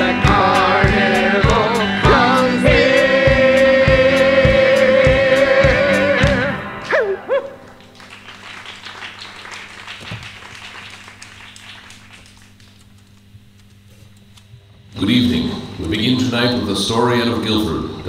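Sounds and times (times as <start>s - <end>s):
person singing: 0.0s - 7.3s
audience applauding: 6.2s - 13.0s
person whooping: 6.9s - 7.7s.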